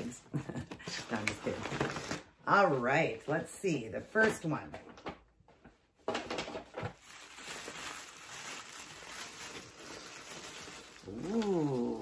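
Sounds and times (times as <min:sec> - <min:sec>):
tissue paper rustling: 0:00.9 - 0:04.2, 0:06.7 - 0:12.0.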